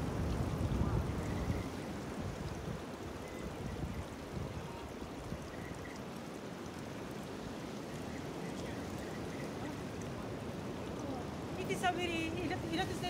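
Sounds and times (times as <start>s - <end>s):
sea surf washing over rocks: 6.4s - 13.0s.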